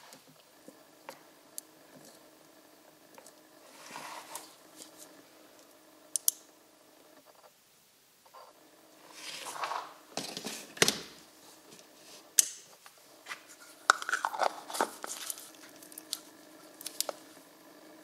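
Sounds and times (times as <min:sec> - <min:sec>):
scraping and rustling: 0:03.6 - 0:05.2, 0:08.4 - 0:10.8, 0:11.4 - 0:17.3.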